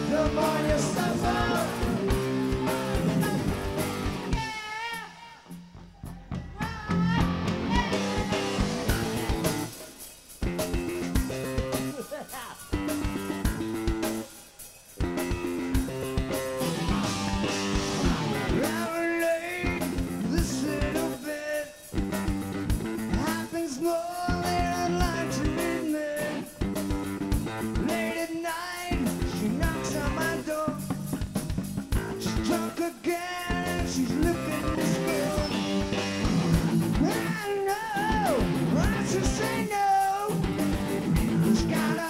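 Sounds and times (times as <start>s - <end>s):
rock band playing: 0.0s - 42.0s.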